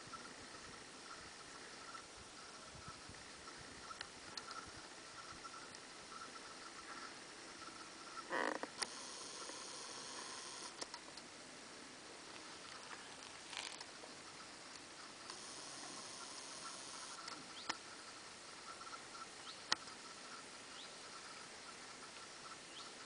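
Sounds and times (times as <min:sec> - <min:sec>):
sharp clicks: 0:08.6 - 0:11.3
zoom motor whirr: 0:08.8 - 0:10.9, 0:15.3 - 0:17.4.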